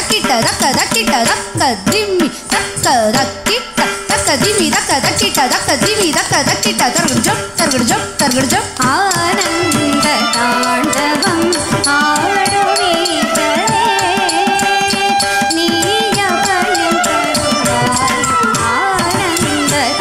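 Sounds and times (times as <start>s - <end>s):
ankle bells jingling: 4.1s - 20.0s.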